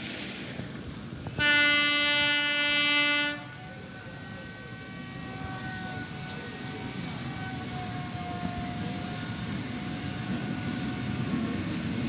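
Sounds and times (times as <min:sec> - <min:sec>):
locomotive horn blast: 0:01.4 - 0:06.2.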